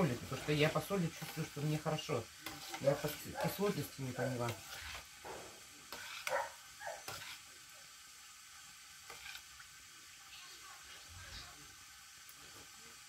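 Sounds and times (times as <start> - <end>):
spoon clinking and scraping pot: 2.4 - 5.0, 5.9 - 6.4, 7.0 - 7.4
vegetables swishing in liquid: 9.0 - 9.5.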